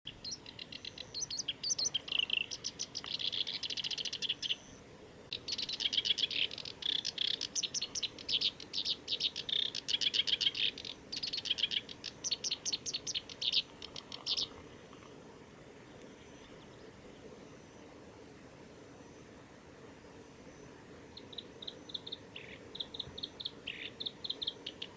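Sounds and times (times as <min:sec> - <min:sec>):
reed warbler singing: 0:00.1 - 0:24.9.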